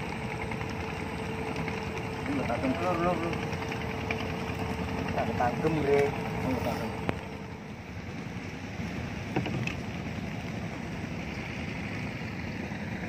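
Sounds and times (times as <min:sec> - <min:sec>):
light knock on boat: 0:09.2 - 0:10.0.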